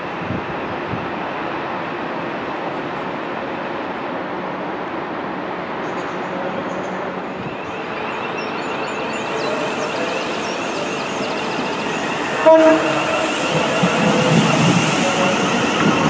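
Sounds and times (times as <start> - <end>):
electric train whine: 0.1 - 16.0
train wheel noise: 6.7 - 16.0
train horn blast: 12.1 - 15.9.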